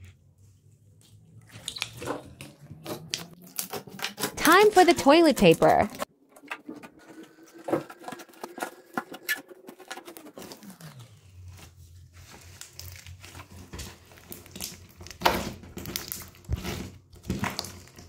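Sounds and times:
toilet paper crinkling: 0:07.0 - 0:18.0.

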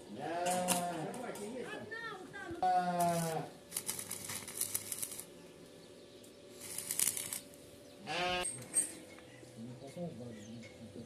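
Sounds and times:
animal bleat: 0:00.1 - 0:01.2, 0:02.6 - 0:03.5, 0:08.0 - 0:08.5
electric arc welding crackling: 0:03.0 - 0:05.3, 0:06.5 - 0:07.6.

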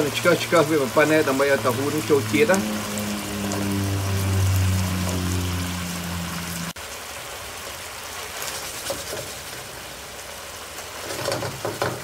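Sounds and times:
sauce simmering and sizzling in a pan: 0:00.0 - 0:12.0
low hum with overtones: 0:00.6 - 0:06.8.

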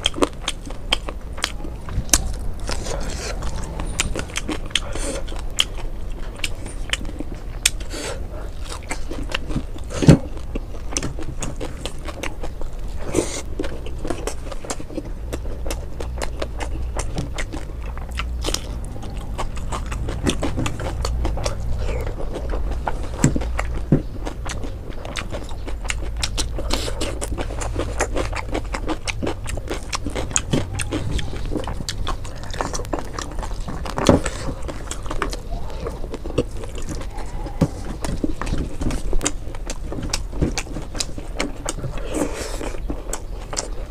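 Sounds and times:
crunching food: 0:00.0 - 0:43.9
wet chewing and mouth smacks: 0:00.0 - 0:43.9.

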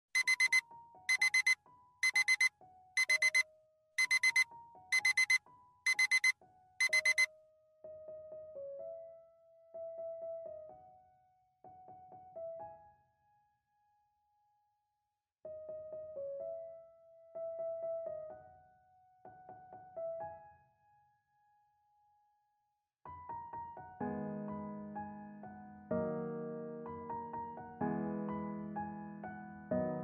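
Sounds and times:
smartphone alarm beeping: 0:00.1 - 0:03.4, 0:04.0 - 0:07.3
soft piano melody: 0:07.4 - 0:13.5, 0:15.5 - 0:21.1, 0:23.1 - 0:30.0.

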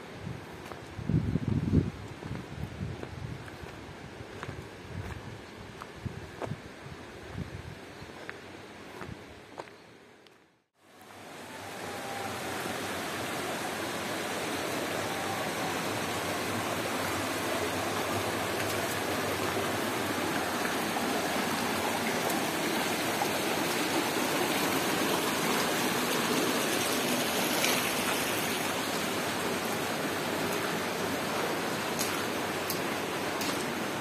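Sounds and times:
stream running over rocks: 0:10.8 - 0:34.0.

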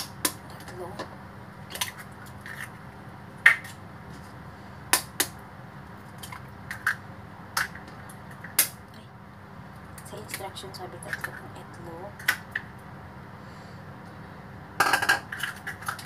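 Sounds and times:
eggs cracking on a ceramic bowl: 0:03.4 - 0:03.8, 0:06.2 - 0:08.8, 0:14.8 - 0:16.0.

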